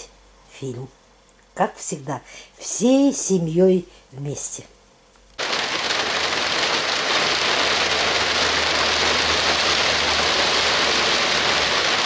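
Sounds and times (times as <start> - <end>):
steady rain: 5.4 - 12.0.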